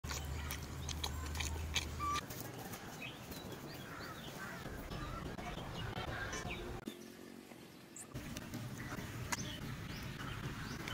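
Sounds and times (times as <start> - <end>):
small birds chirping: 0.0 - 10.9.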